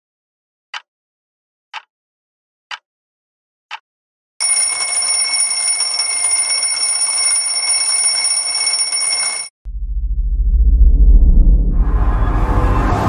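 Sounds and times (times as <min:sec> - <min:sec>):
alarm clock bells ringing: 0:04.4 - 0:09.5
alarm clock tick: 0:04.4 - 0:09.5.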